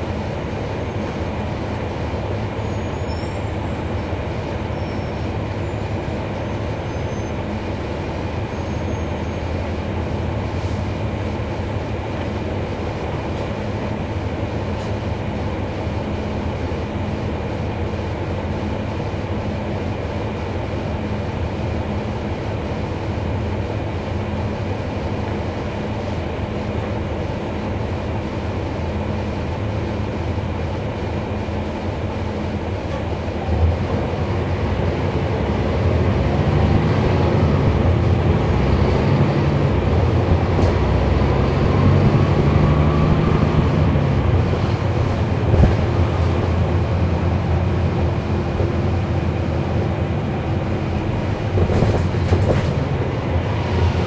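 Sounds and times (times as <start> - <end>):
bus diesel engine drone: 0.0 - 54.0
cabin rumble: 30.3 - 54.0.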